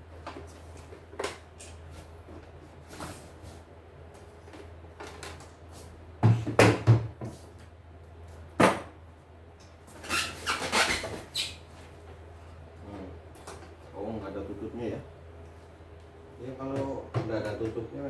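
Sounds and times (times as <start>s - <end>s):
steady low hum: 11.6s - 18.0s.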